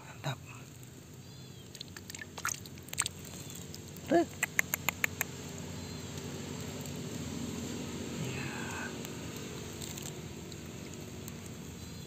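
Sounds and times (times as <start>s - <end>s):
stream water running: 0.5s - 12.0s
sharp clicks: 3.0s - 5.4s.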